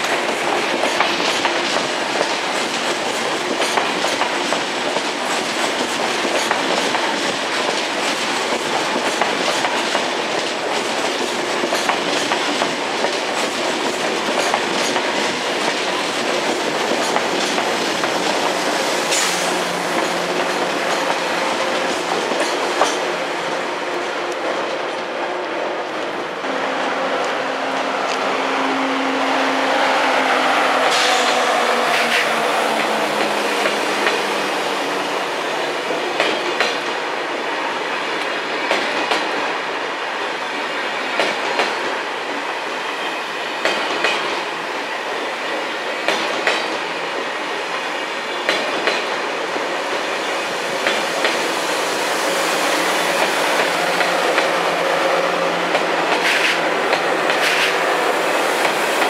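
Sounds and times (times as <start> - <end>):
train rolling noise: 0.0 - 59.0
train whine falling in pitch: 26.4 - 36.5.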